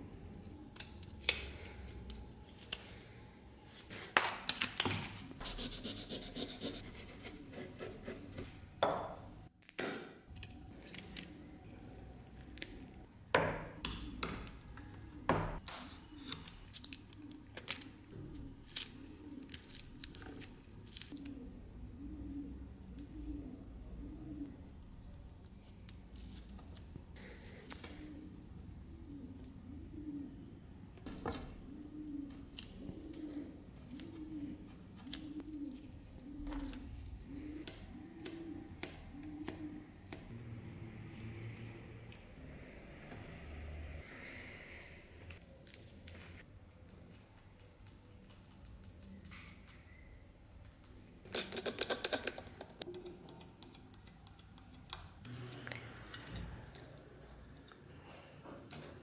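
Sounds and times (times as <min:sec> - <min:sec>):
pigeon cooing: 0:13.7 - 0:46.5.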